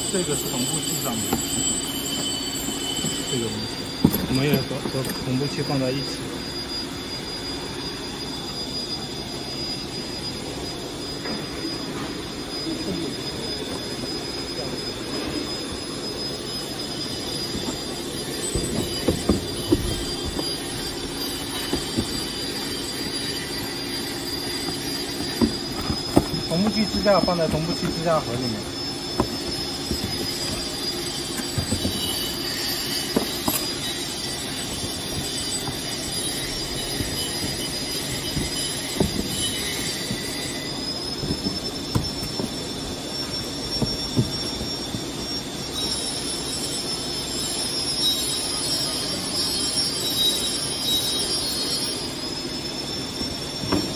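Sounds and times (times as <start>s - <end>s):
machine hum with high whine: 0.0s - 53.9s
knocks of boxes being handled: 18.5s - 20.8s, 36.9s - 40.4s.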